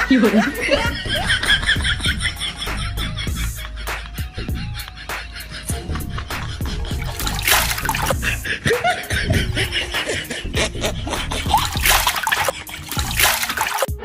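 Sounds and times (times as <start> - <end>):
background music: 0.0 - 14.0
water splashing on concrete: 7.0 - 8.2, 11.5 - 13.9.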